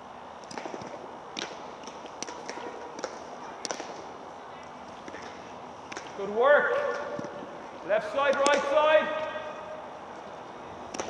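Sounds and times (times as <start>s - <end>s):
steady background noise: 0.0s - 11.0s
hurleys striking balls: 0.4s - 4.2s, 5.0s - 9.8s.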